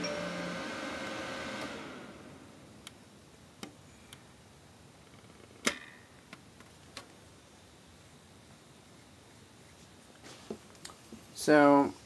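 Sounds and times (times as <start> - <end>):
computer fans running: 0.0 - 4.4.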